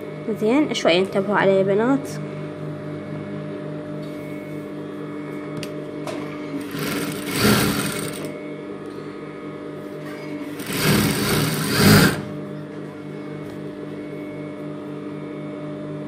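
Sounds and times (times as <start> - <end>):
steady hum: 0.0 - 16.0
sewing machine stitching: 6.6 - 8.3, 10.5 - 12.3.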